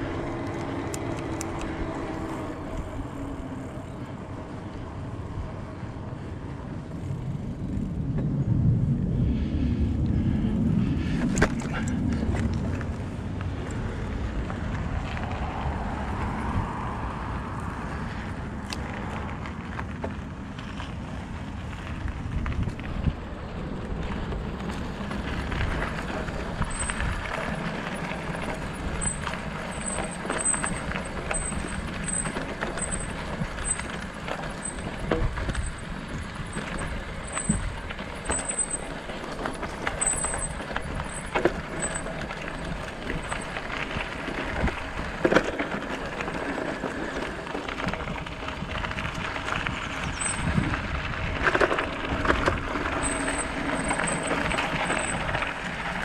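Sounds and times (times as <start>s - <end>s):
bicycle rattling over bumps: 0.0s - 56.0s
bicycle tyres crunching on gravel: 0.0s - 56.0s
wind on microphone: 6.3s - 19.4s, 21.2s - 29.4s, 46.3s - 56.0s.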